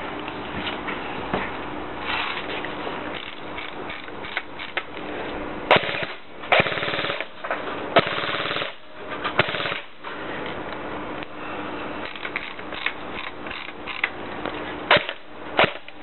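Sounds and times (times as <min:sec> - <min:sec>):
airsoft rifle shots: 0:05.7 - 0:07.3, 0:08.0 - 0:08.8, 0:09.4 - 0:09.9, 0:14.9 - 0:16.0
rapid full-auto bursts: 0:05.7 - 0:07.4, 0:08.0 - 0:08.8, 0:09.4 - 0:10.0, 0:14.9 - 0:16.0.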